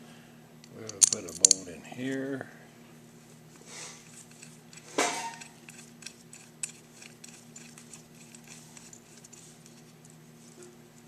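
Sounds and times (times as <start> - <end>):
steady low hum: 0.0 - 11.0
metal clinks of bolt fitting: 0.8 - 1.6.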